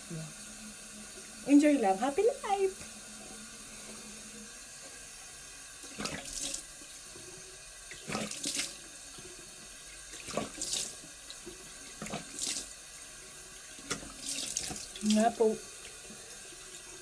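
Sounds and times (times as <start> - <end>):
tap running into sink: 10.2 - 12.7, 13.8 - 15.2.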